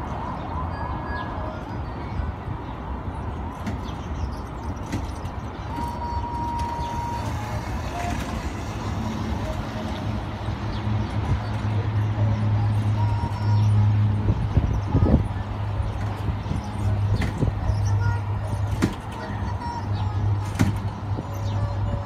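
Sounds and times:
mini train motor humming: 5.8 - 14.1.

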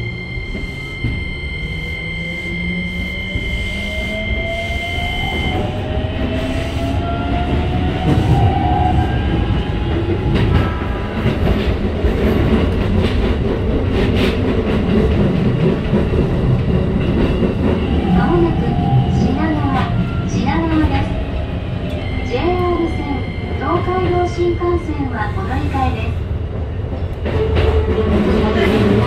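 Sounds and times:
steady high tones: 0.0 - 7.0
train running noise: 0.0 - 29.0.

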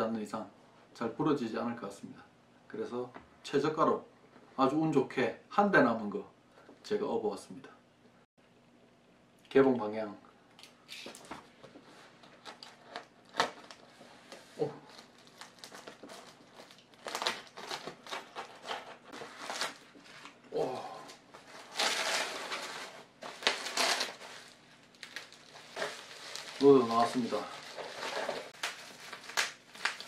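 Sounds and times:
plastic packaging sliding out: 21.1 - 30.0
tape and paper tearing: 21.4 - 30.0.

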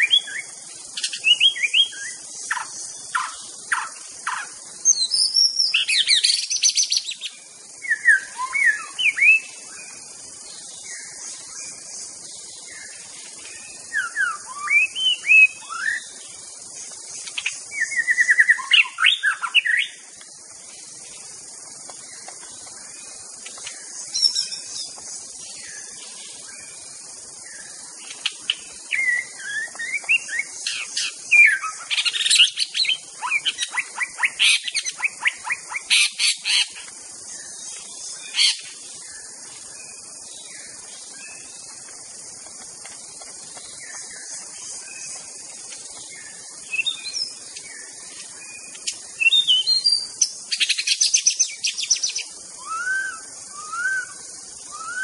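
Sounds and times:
rapid rattling bird trills: 0.0 - 55.0
steady high hiss: 0.0 - 55.0
bird singing whistled phrases: 7.9 - 9.5, 13.9 - 16.1, 17.8 - 19.9, 28.9 - 36.6, 50.8 - 55.0.

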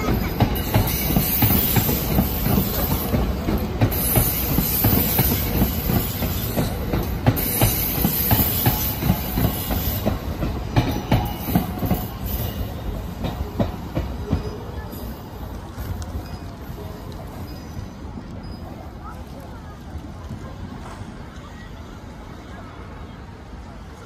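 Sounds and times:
wheels clacking over rail joints: 0.0 - 19.0
train wheels rumbling on rails: 0.0 - 24.0.

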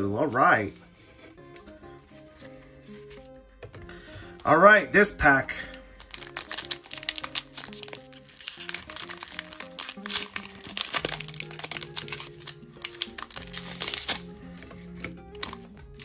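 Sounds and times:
background music: 0.0 - 16.0
foil wrapper crinkling: 5.8 - 14.3, 15.4 - 16.0.

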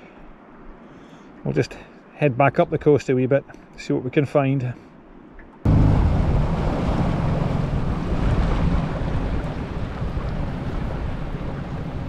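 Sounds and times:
water along hull: 0.0 - 12.0
boat motor running: 5.7 - 12.0
wind on microphone: 5.7 - 12.0.

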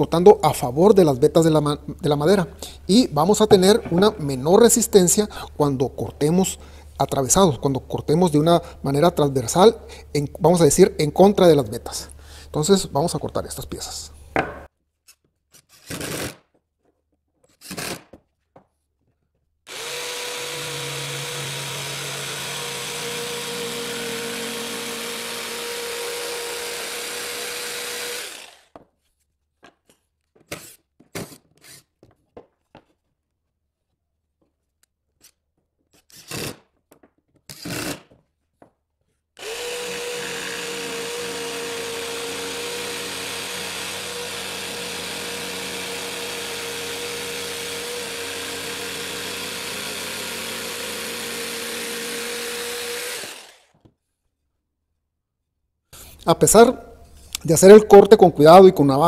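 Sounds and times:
wooden knocks: 3.4 - 4.3, 14.4 - 14.7
jigsaw cutting wood: 19.7 - 28.8, 37.5 - 38.1, 39.4 - 53.8.

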